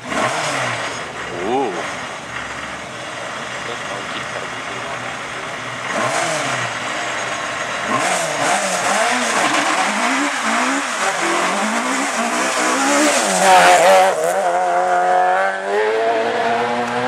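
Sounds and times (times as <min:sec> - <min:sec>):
other car engines running: 0:00.0 - 0:17.0
rally car engine revving: 0:00.0 - 0:17.0.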